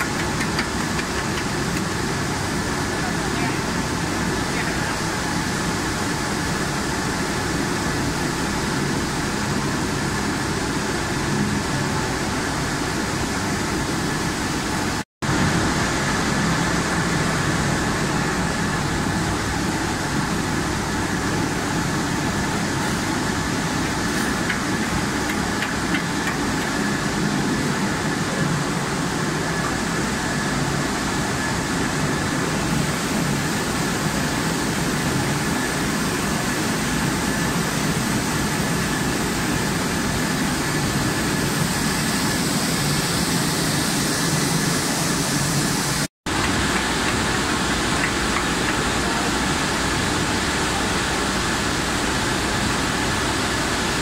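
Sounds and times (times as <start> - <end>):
production line machinery running: 0.0 - 54.0.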